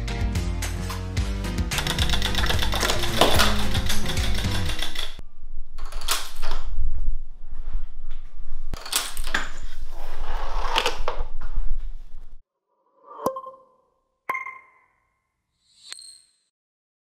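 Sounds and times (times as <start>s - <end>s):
objects clattering and rattling: 2.2s - 5.2s.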